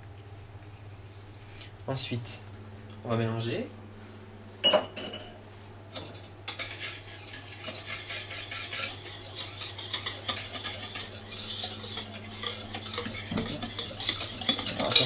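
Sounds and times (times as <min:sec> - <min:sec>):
whisk beating batter in bowl: 0:06.0 - 0:15.0.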